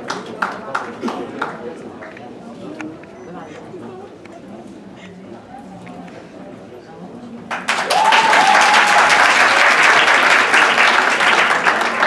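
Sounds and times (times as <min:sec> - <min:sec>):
audience applauding: 0:07.5 - 0:12.0
high call from crowd: 0:07.7 - 0:12.0.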